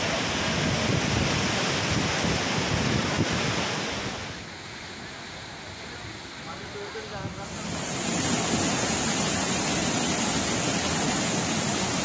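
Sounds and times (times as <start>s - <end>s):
rushing floodwater: 0.0s - 12.0s
wind buffeting microphone: 0.2s - 4.2s.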